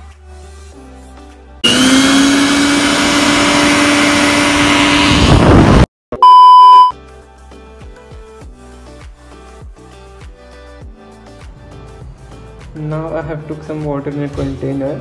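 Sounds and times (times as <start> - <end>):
test-pattern beep: 6.2 - 6.9.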